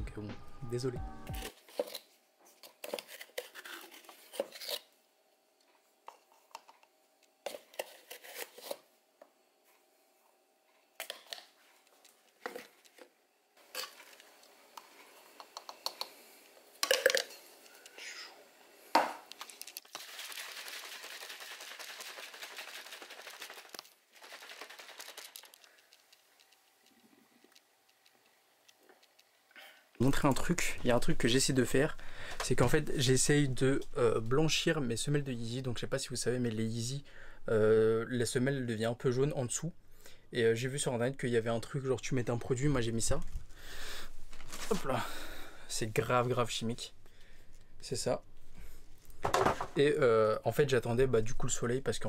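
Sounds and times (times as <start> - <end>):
containers and packaging handled: 19.3 - 28.0.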